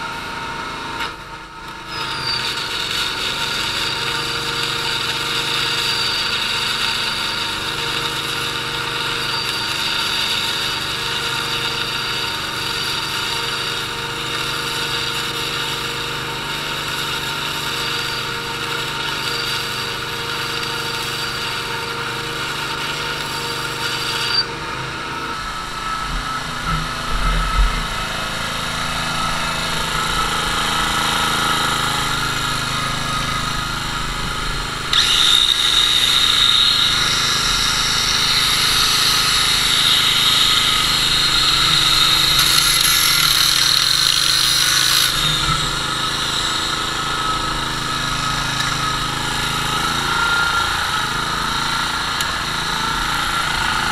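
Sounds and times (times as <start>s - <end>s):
angle grinder whine: 0.0s - 53.9s
small gasoline engine running: 0.0s - 53.9s.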